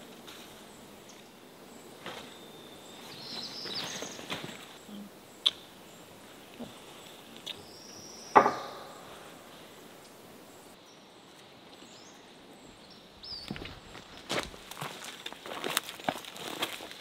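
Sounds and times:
sharp ringing knock: 0:08.4 - 0:09.0.

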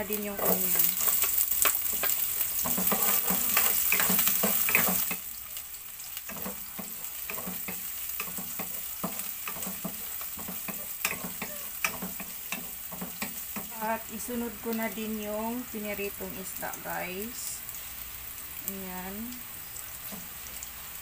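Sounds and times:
onion and garlic sizzling: 0:00.0 - 0:21.0
spatula scraping a pan: 0:00.4 - 0:05.2, 0:06.3 - 0:13.7.

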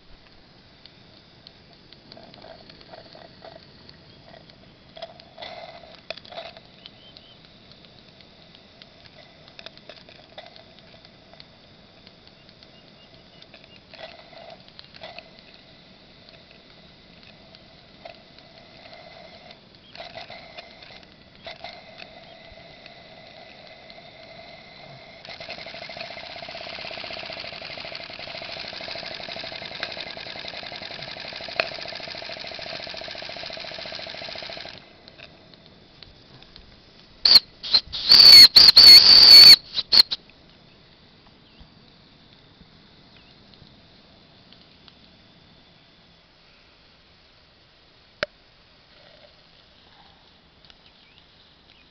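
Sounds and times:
shrill steam whistle blasts: 0:37.3 - 0:40.2.

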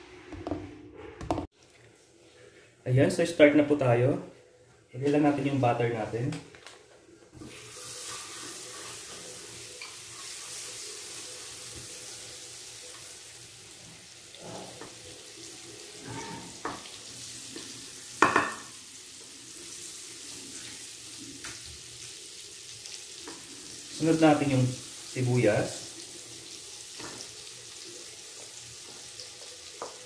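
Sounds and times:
butter sizzling in a pan: 0:07.4 - 0:30.0.

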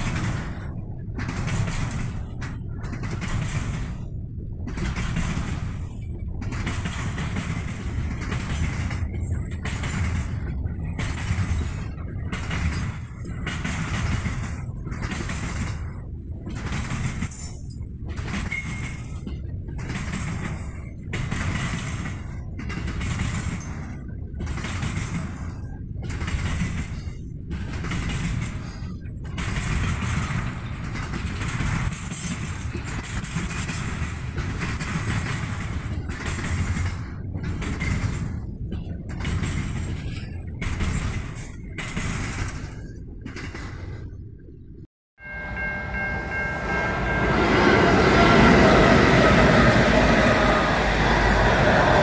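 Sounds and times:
train wagons rumbling on rails: 0:00.0 - 0:52.0.

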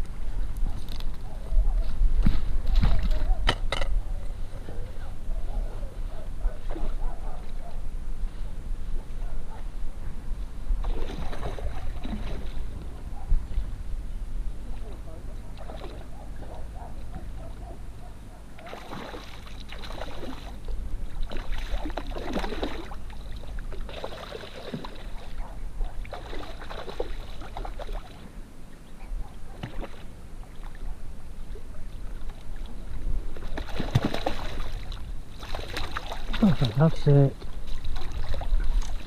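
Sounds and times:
wind rumble on microphone: 0:00.0 - 0:18.5, 0:37.4 - 0:39.0
fish splashing at the surface: 0:10.8 - 0:12.6, 0:18.6 - 0:20.6, 0:21.2 - 0:25.3, 0:26.1 - 0:28.2, 0:33.4 - 0:36.9.

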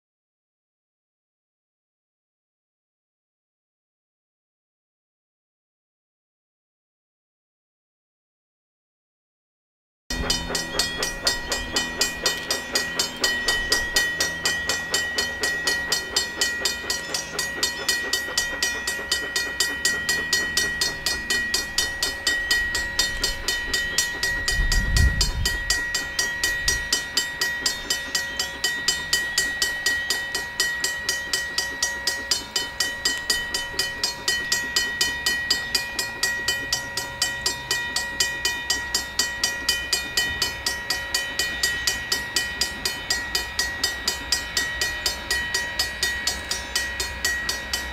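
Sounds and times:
steady high tone: 0:10.1 - 0:47.9
steam locomotive running: 0:10.1 - 0:47.9.

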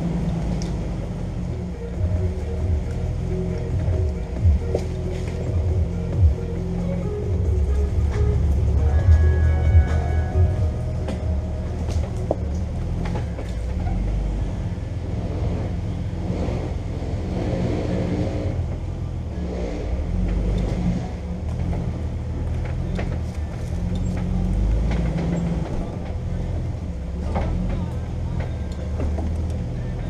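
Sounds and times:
car engine running at low speed: 0:00.0 - 0:30.0
vehicle knocks and rattles: 0:07.2 - 0:16.0, 0:20.2 - 0:30.0.

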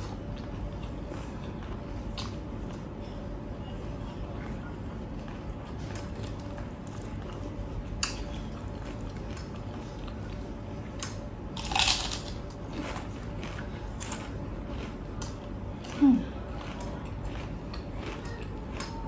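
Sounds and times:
person chewing: 0:05.1 - 0:19.0
food crunch: 0:05.2 - 0:19.0.

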